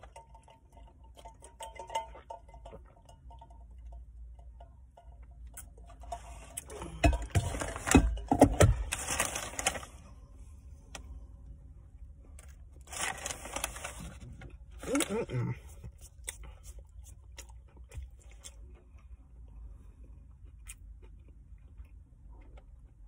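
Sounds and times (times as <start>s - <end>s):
paper wrapper rustling and crinkling: 8.7s - 10.0s, 12.8s - 15.3s.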